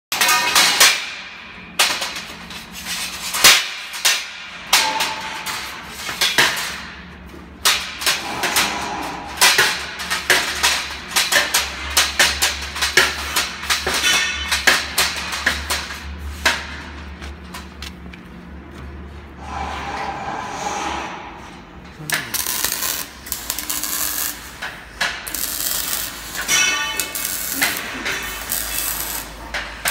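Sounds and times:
steel tubes clanking: 0:25.2 - 0:29.9.

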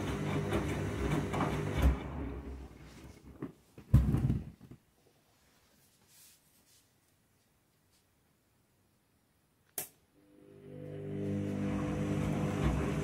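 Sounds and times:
sharp click: 0:09.7 - 0:10.0.

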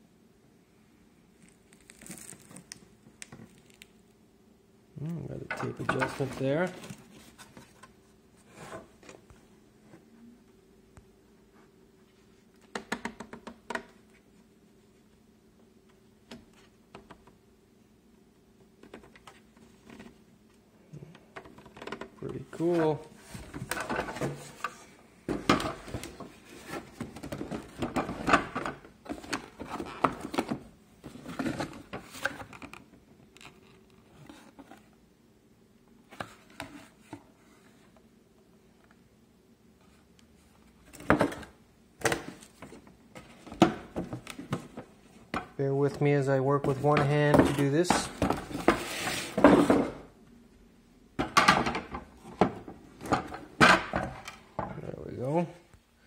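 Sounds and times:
cardboard rustling: 0:45.9 - 0:49.9.

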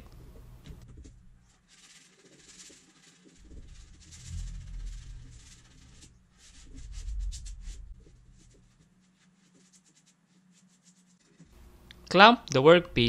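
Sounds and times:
hand sanding wood: 0:01.5 - 0:11.6.

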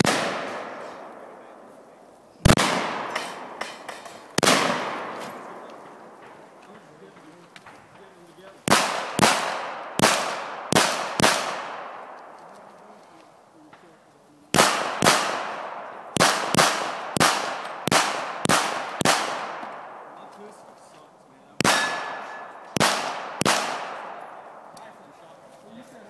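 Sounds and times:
pistol shots with echo: 0:00.0 - 0:01.8, 0:02.4 - 0:06.5, 0:08.6 - 0:12.4, 0:14.5 - 0:20.3, 0:21.6 - 0:24.7.

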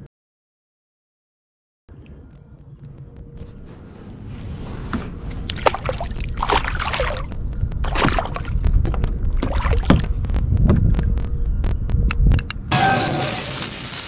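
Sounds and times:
steady low rumble: 0:01.9 - 0:12.7
water splashing and sloshing: 0:03.5 - 0:11.1
sharp clicks: 0:05.3 - 0:12.7.

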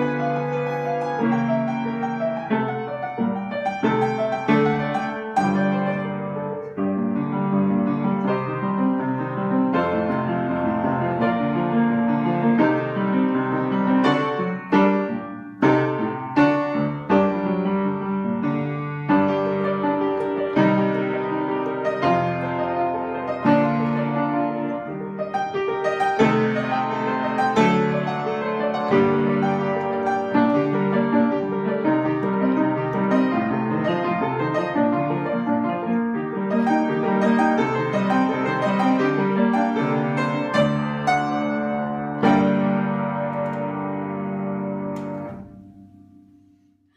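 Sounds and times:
solo piano playing: 0:00.0 - 0:46.9.

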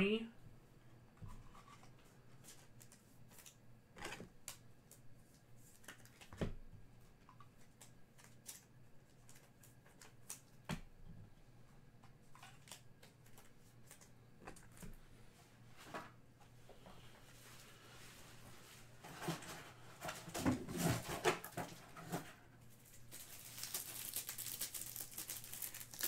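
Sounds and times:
trading cards clicking and rustling: 0:23.1 - 0:26.0.

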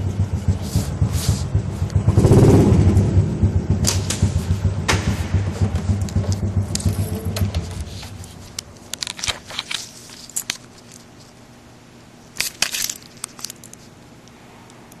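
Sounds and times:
phone handling clicks and rustling: 0:06.1 - 0:11.1, 0:12.4 - 0:13.9.

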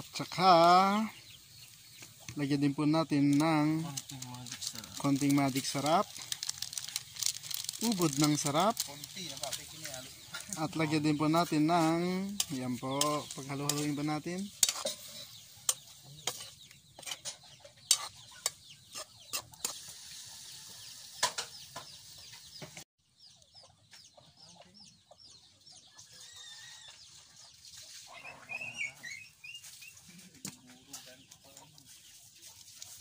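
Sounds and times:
chickens clucking: 0:00.0 - 0:33.0
metal spoon scraping a steel wok: 0:12.3 - 0:20.3.

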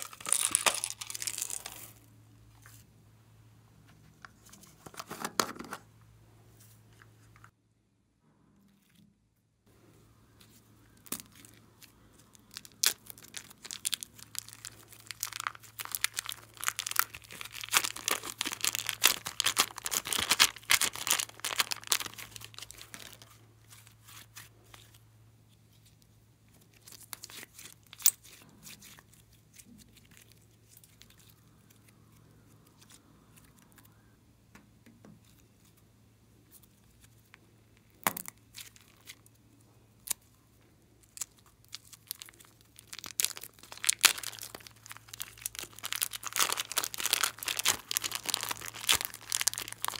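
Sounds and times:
slime squeezed from plastic bag: 0:00.0 - 0:02.0, 0:11.0 - 0:24.4, 0:41.1 - 0:49.9
plastic crinkle: 0:00.0 - 0:02.8, 0:10.4 - 0:34.0, 0:36.5 - 0:49.9.

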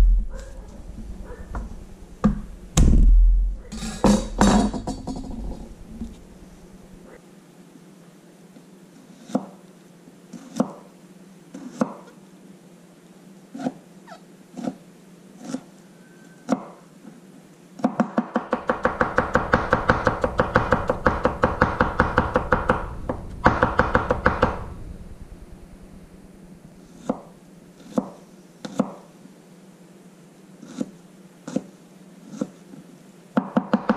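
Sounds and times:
knife chopping on wooden board: 0:17.8 - 0:24.5.

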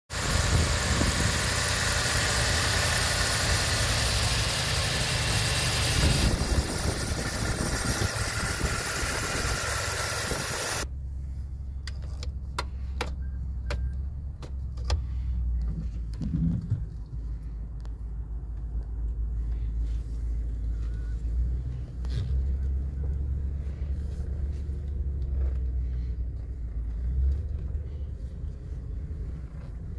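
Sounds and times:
pickup engine idling: 0:00.1 - 0:13.9.

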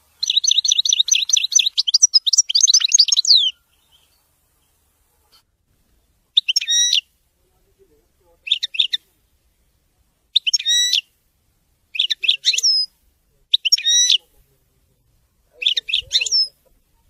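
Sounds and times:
goldfinch twittering song: 0:00.0 - 0:04.8, 0:06.4 - 0:07.1, 0:08.4 - 0:09.0, 0:10.3 - 0:11.1, 0:11.9 - 0:12.9, 0:13.5 - 0:14.2, 0:15.6 - 0:16.6.

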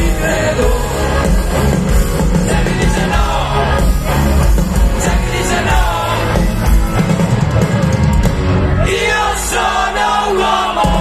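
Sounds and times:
live rock band playing: 0:00.0 - 0:11.0.

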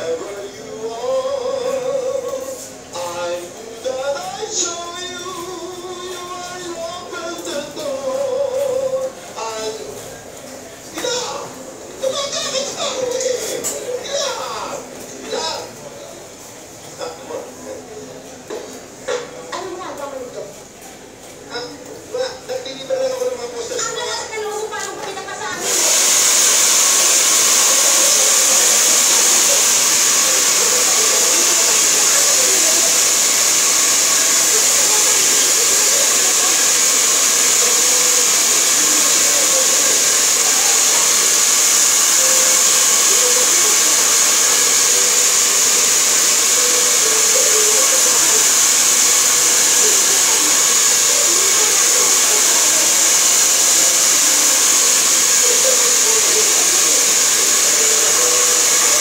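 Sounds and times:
hair dryer blowing: 0:25.5 - 0:59.0.

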